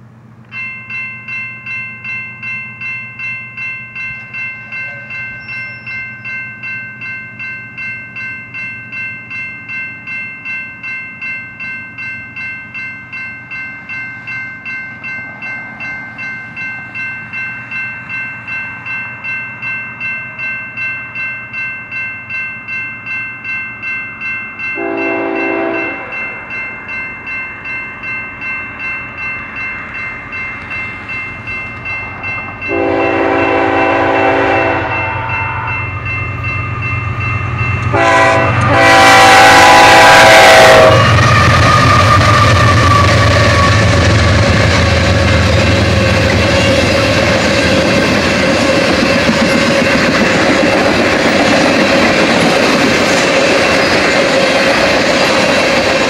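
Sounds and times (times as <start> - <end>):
railroad crossing bell ringing: 0.0 - 56.0
locomotive horn blast: 24.8 - 26.2, 32.7 - 35.7, 37.9 - 43.9.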